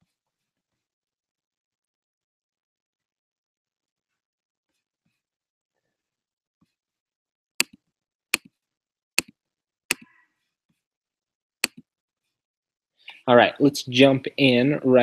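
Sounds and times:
computer mouse clicks: 11.6s - 11.8s.

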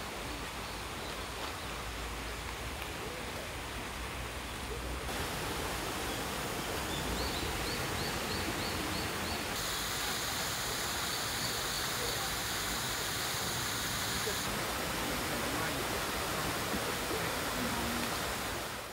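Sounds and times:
stream running over stones: 0.0s - 18.9s
high steady buzz: 9.6s - 14.6s.

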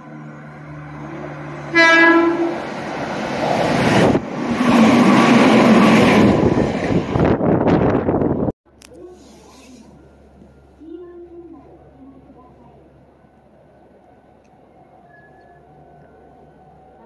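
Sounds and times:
train wheels rushing on rails: 0.4s - 8.1s
train horn blast: 1.6s - 2.6s.

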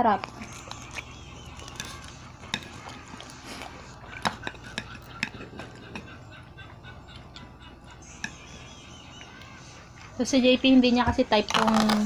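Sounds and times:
person chewing: 0.1s - 8.6s
spoon and chopsticks clicking on plates: 4.1s - 6.2s.

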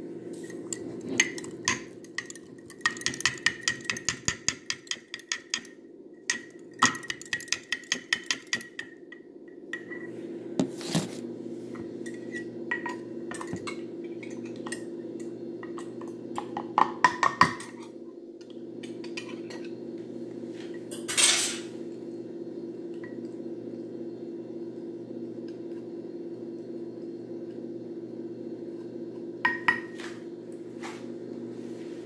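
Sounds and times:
steady low hum: 0.0s - 32.0s
whisk clinking in glass bowl: 0.7s - 5.7s, 6.3s - 8.9s.

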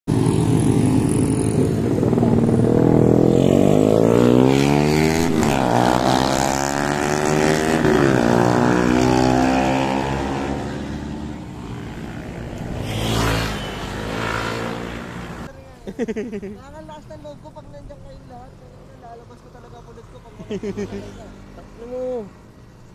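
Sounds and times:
vehicle rushing past: 0.1s - 15.5s
motorcycle engines passing: 0.1s - 22.9s.

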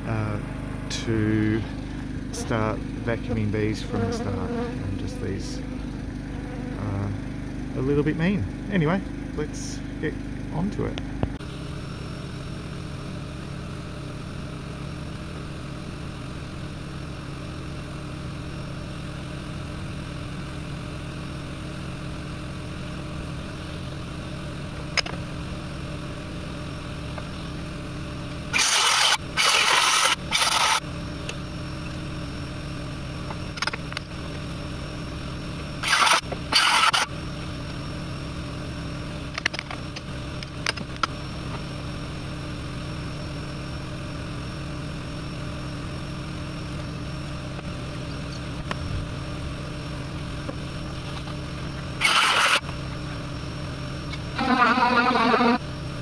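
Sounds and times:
generator engine running: 0.0s - 56.0s
short loud noise bursts: 52.0s - 52.6s.

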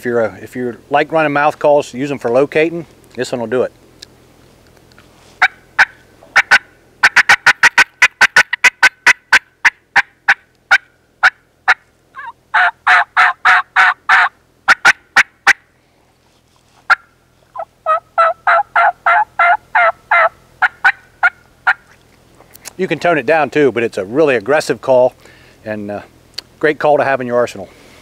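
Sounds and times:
turkey call cutts: 5.4s - 15.6s, 16.8s - 22.8s
turkey call yelps: 5.4s - 15.6s, 16.9s - 21.9s.

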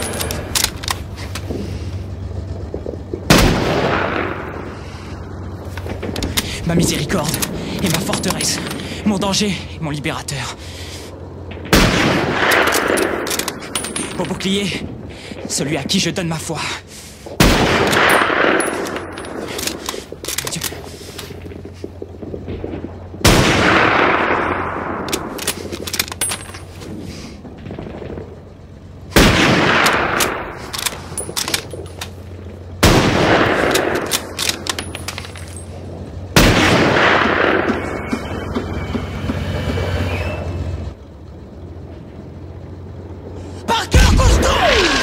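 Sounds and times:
lighter gunfire crackling: 0.0s - 38.9s
low engine rumble: 0.0s - 45.0s
rifle shots echoing: 2.2s - 8.9s, 11.3s - 14.9s, 17.4s - 26.4s, 27.6s - 38.1s.

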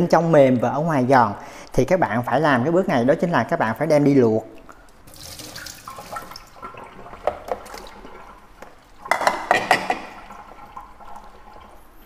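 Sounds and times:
water dripping and splashing: 4.1s - 12.0s
wet clatter: 6.0s - 10.4s.

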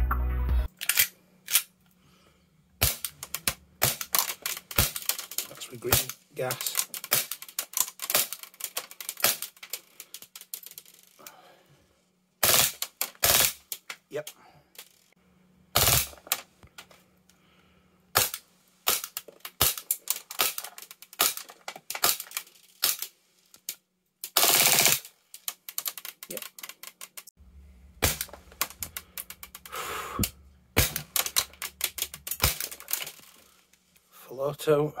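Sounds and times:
airsoft pistol shots: 15.8s - 16.2s, 28.0s - 28.3s, 30.8s - 31.2s.

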